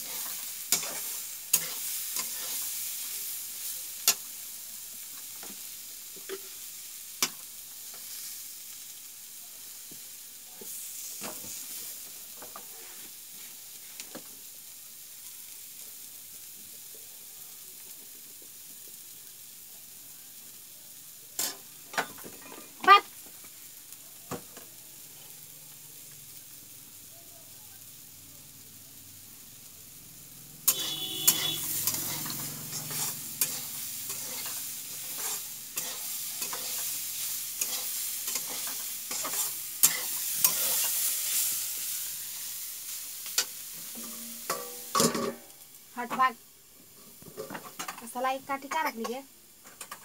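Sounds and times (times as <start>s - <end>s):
metal spatula scraping pan: 0.0s - 2.8s, 30.7s - 41.6s, 43.7s - 45.4s
vegetables sizzling in pan: 0.0s - 50.0s.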